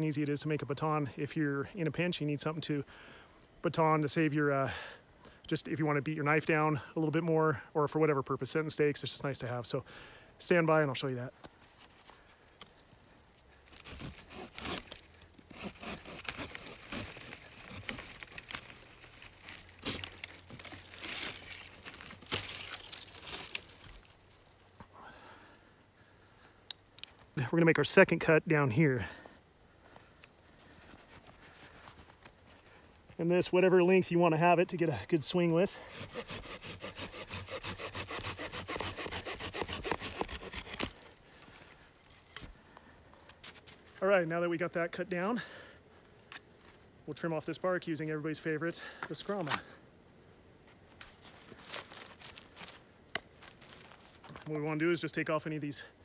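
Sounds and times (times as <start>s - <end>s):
saw cutting through wood: 13.8s - 14.9s, 15.5s - 18.2s, 35.7s - 40.9s.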